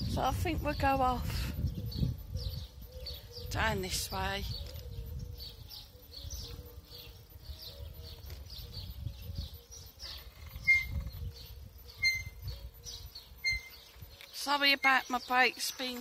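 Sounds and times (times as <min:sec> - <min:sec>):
birds chirping: 0:00.0 - 0:16.0
brakes squeaking: 0:13.4 - 0:16.0.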